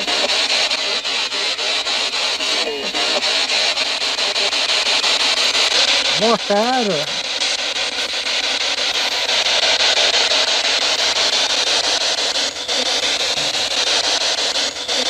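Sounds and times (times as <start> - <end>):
radio static hiss: 0.0 - 15.0.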